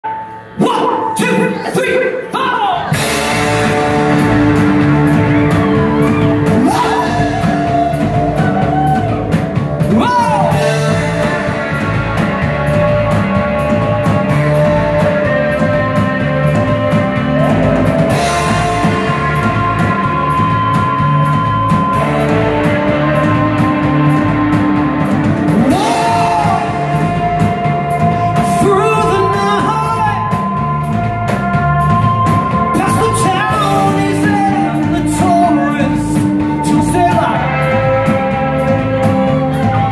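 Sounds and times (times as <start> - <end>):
distorted electric guitars: 2.8 - 39.9
drum kit beat: 2.8 - 39.9
electric bass: 2.8 - 39.9
man singing and yelling: 5.6 - 11.9, 25.5 - 30.9, 32.6 - 38.5.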